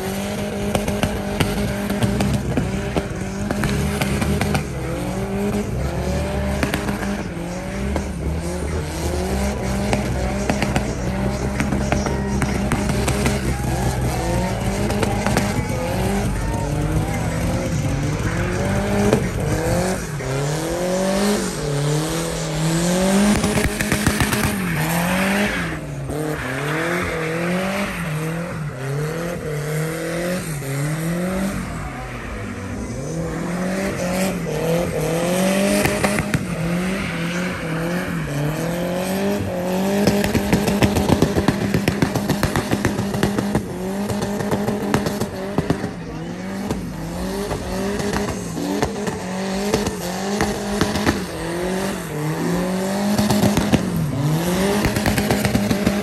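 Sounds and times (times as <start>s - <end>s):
car engine revving: 0.0s - 56.0s
rapid exhaust crackle: 0.0s - 56.0s
spinning tyres hissing: 0.0s - 56.0s.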